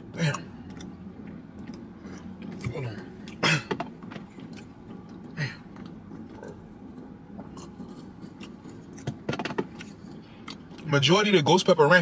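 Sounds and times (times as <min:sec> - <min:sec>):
man sipping and swallowing: 0:04.4 - 0:10.8.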